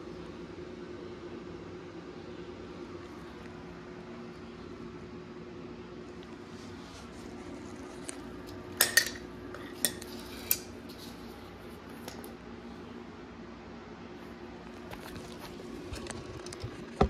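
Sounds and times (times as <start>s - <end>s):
faint steady hum: 0.0s - 17.0s
metal tools clinking on concrete: 8.8s - 9.2s.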